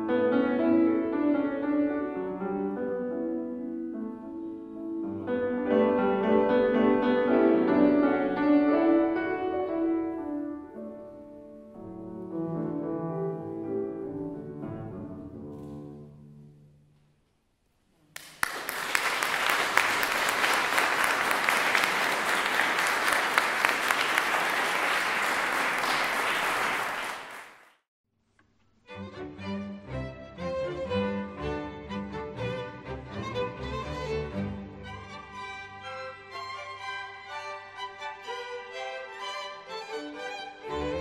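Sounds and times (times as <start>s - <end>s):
piano chords: 0.0s - 16.7s
music: 0.0s - 17.8s, 28.4s - 41.0s
audience applauding: 18.2s - 27.8s.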